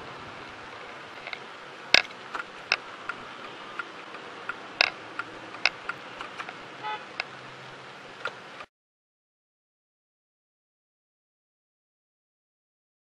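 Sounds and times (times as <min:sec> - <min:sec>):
road hiss: 0:00.0 - 0:08.7
sharp clicks: 0:01.2 - 0:07.3
car horn toot: 0:06.8 - 0:07.2.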